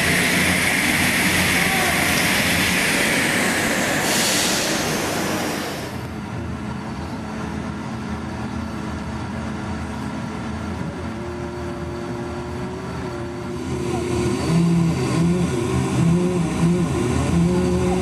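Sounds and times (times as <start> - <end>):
loud hissing noise: 0.0 - 6.1.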